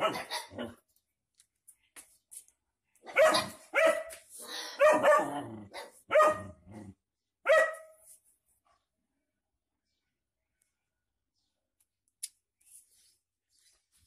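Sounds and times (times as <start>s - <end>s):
dog barking: 0.0s - 0.8s, 3.0s - 4.1s, 4.7s - 6.6s, 7.4s - 8.0s.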